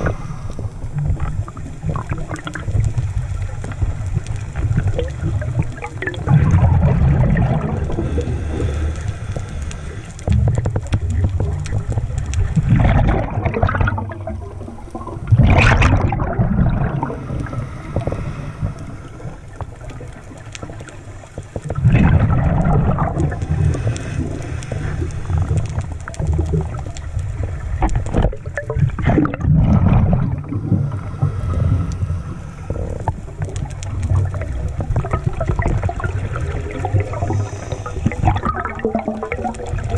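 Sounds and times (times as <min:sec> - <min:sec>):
underwater regulator breathing: 0:00.0 - 0:01.2, 0:07.4 - 0:10.9, 0:16.8 - 0:20.2, 0:22.3 - 0:26.2, 0:30.1 - 0:39.2
air bubbles gurgling: 0:00.0 - 0:39.9.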